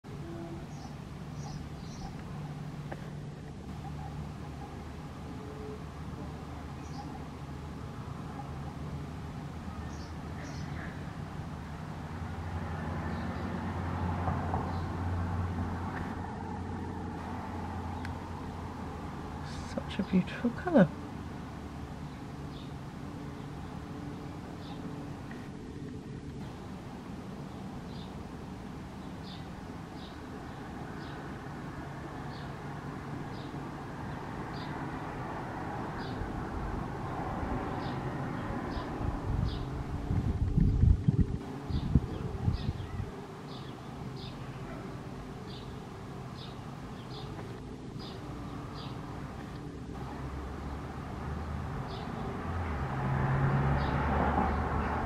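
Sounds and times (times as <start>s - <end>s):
motor vehicle rumbling: 0.0s - 55.0s
bird chirping: 0.4s - 2.7s, 6.7s - 7.3s, 9.7s - 11.0s, 41.7s - 49.0s.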